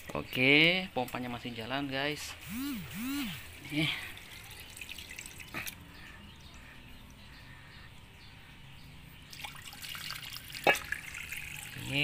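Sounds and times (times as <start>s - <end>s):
water trickling and splashing: 3.4s - 7.3s, 9.2s - 12.0s.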